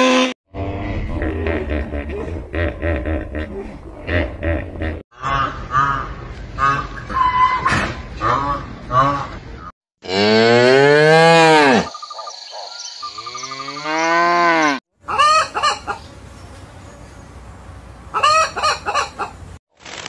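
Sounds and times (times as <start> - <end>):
hen clucking: 15.1 - 16.1, 18.1 - 19.4.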